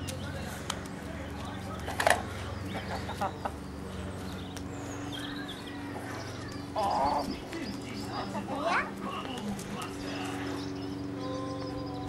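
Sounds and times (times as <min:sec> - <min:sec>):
steady low hum: 0:00.0 - 0:12.0
hens clucking: 0:02.4 - 0:03.6, 0:05.7 - 0:09.9.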